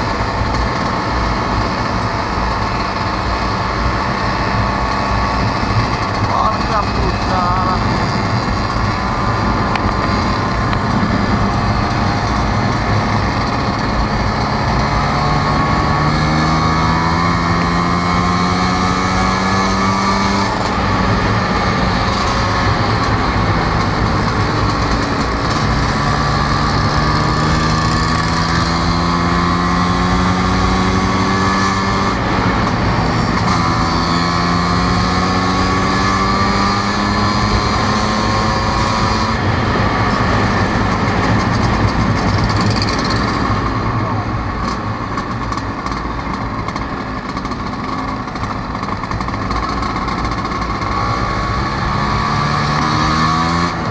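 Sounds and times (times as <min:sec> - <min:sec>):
scooter engine running: 0:00.0 - 0:53.9
wind noise: 0:07.6 - 0:45.1.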